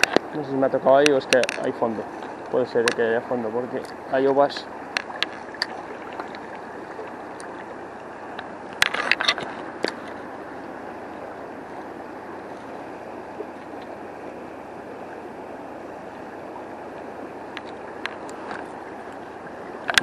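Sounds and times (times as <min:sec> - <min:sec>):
river current rushing: 0:00.0 - 0:20.0
sharp clicks and knocks: 0:01.0 - 0:03.1.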